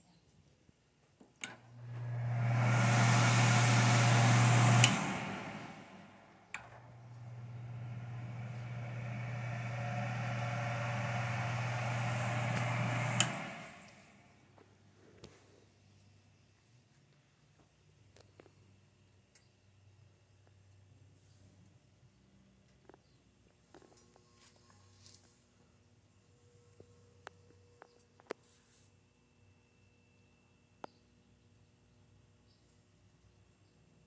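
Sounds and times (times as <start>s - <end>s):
vent blower rushing: 1.5s - 14.5s.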